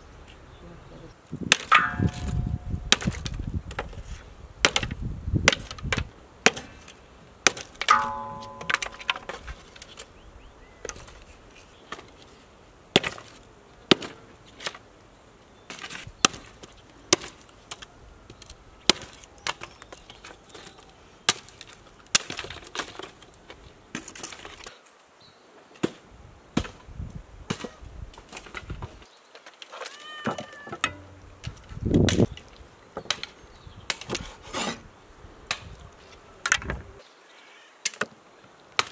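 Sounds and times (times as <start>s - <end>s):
hatchet chopping wood: 1.5s - 3.9s, 4.6s - 6.8s, 7.4s - 9.6s, 13.0s - 13.3s, 13.9s - 14.2s, 30.8s - 32.3s.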